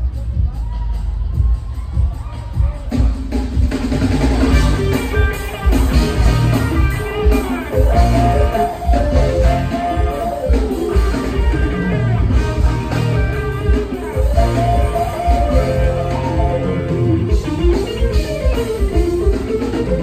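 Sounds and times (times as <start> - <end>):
live band playing loud music: 0.0 - 20.0
electric guitar: 4.0 - 20.0.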